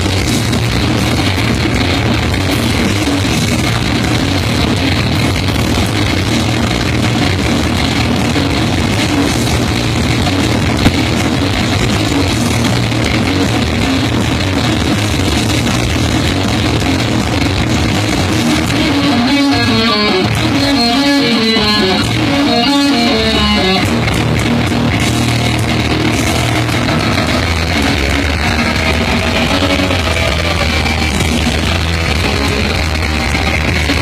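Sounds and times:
electric guitar: 0.0 - 34.0
live rock band playing: 0.0 - 34.0.

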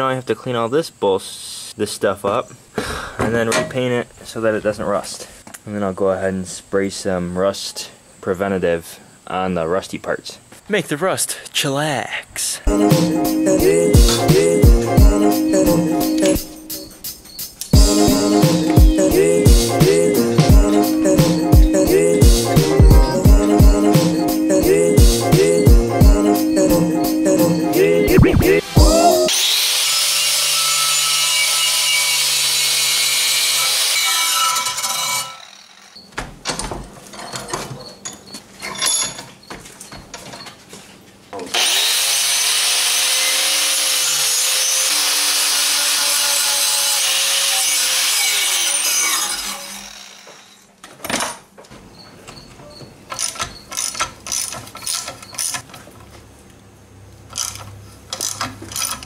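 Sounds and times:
motor winding down whine: 49.4 - 50.6.

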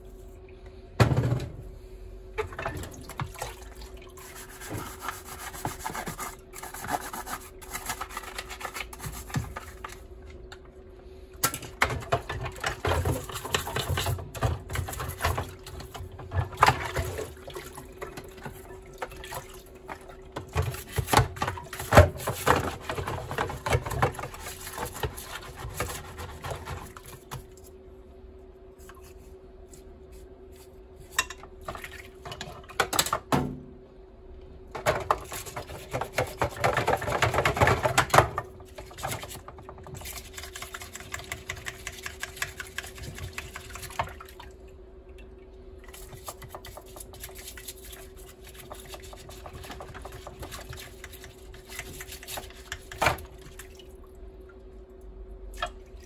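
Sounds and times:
brush scrubbing plastic: 4.0 - 10.0, 12.0 - 27.8, 34.8 - 44.1, 45.9 - 53.4.

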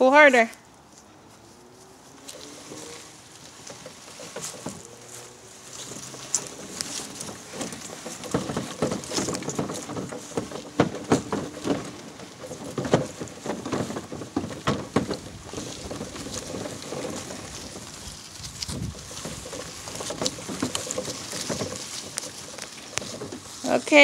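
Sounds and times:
plastic wheels rolling on grass: 0.0 - 24.0
plastic toy rattling and clattering: 5.8 - 24.0.

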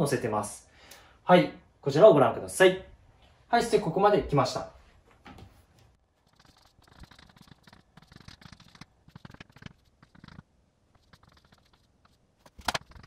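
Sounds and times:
chalk tapping and scratching: 10.9 - 13.0.

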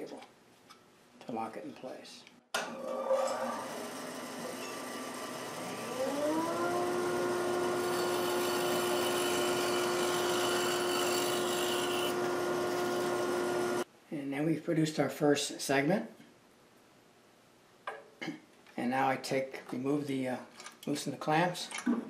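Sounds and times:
bandsaw motor humming: 2.6 - 13.8
saw blade whining through wood: 2.6 - 13.8.

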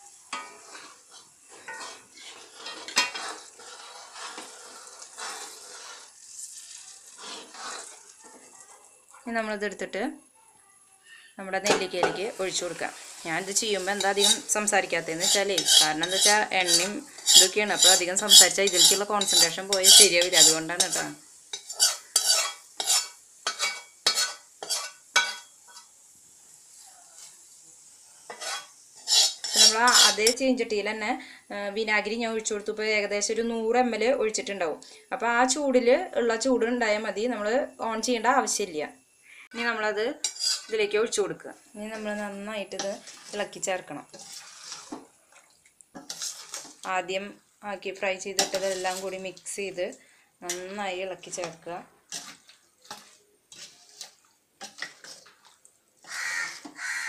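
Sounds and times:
spoon scraping a wok: 0.0 - 9.3, 11.6 - 26.0, 28.2 - 30.5, 40.2 - 41.2, 41.8 - 46.9, 48.2 - 49.6, 50.4 - 57.0
oil sizzling: 0.0 - 10.4, 11.4 - 57.0.

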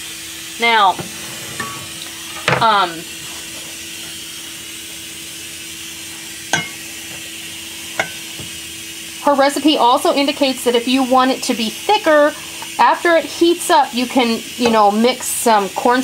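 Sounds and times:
steady low hum: 0.6 - 9.4
spatula scraping saucepan: 0.8 - 4.6, 6.0 - 8.6, 14.2 - 15.0.

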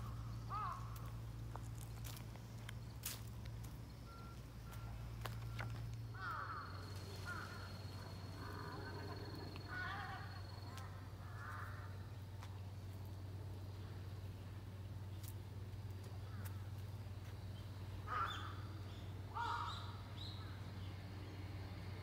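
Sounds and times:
birds calling: 0.0 - 12.5, 17.6 - 20.6
steady low hum: 0.0 - 22.0.

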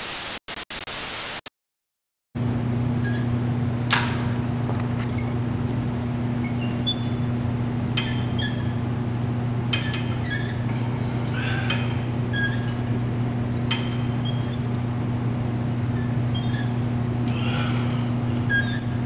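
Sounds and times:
steady low hum: 2.4 - 19.0
metallic clinks of cable machine: 7.9 - 8.8, 9.7 - 10.7, 13.6 - 14.6.

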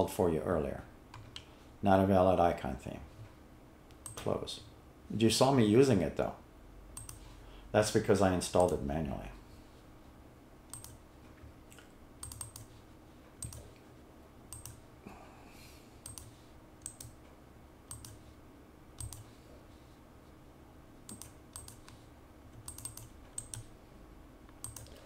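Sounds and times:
mouse buttons and keys clicking: 7.0 - 7.3, 10.7 - 11.0, 12.2 - 12.8, 13.4 - 13.8, 16.0 - 17.2, 17.9 - 18.2, 19.0 - 19.3, 21.1 - 22.0, 22.6 - 23.7, 24.6 - 25.0.

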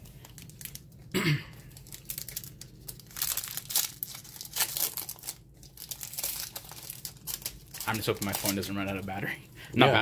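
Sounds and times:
foil wrapper tearing and crinkling: 0.0 - 9.3.

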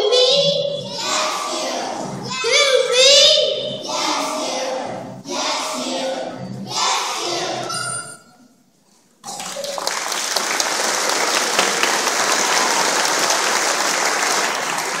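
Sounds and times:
audience applause: 9.3 - 15.0.

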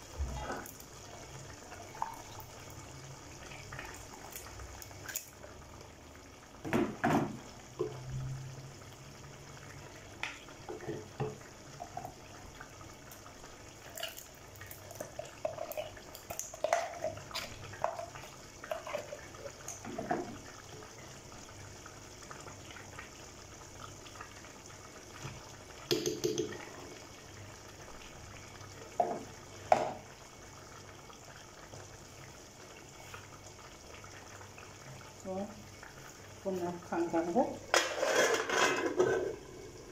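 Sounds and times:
stew bubbling in a pot: 0.0 - 39.9
spoon knocking and scraping pot: 25.9 - 26.6, 37.7 - 39.4.

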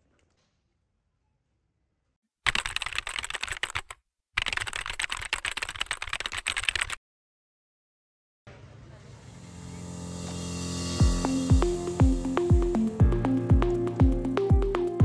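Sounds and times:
rapid keyboard typing clicks: 2.5 - 7.0.

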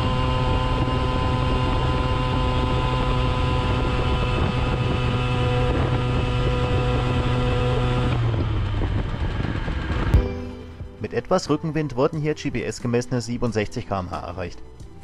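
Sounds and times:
moped engine at full throttle: 0.0 - 10.2
wind on microphone: 0.0 - 10.2.

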